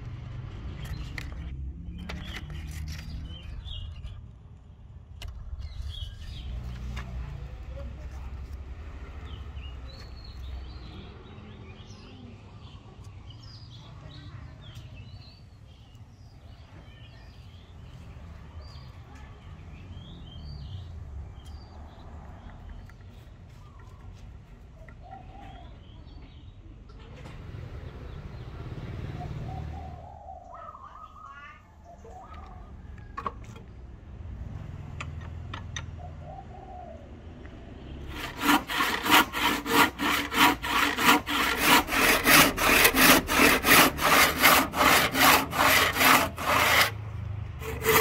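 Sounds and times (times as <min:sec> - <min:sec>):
small birds chirping: 0:09.2 - 0:27.0, 0:28.0 - 0:33.9.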